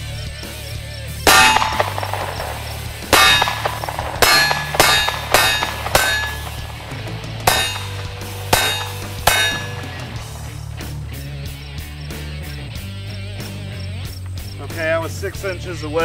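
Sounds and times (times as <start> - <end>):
metallic clang of steel plate: 1.3 - 10.3
pistol shots: 1.3 - 11.2.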